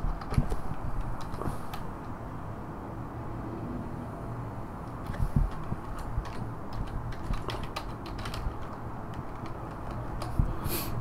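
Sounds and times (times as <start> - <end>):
steady low hum: 0.0 - 11.0
keyboard typing clicks: 5.0 - 10.4.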